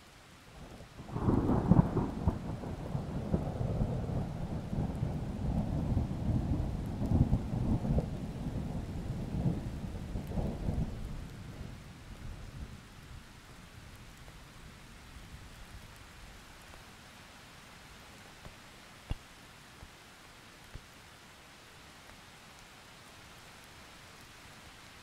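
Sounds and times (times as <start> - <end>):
steady rain: 0.0 - 25.0
thunder rumbling: 1.0 - 11.8.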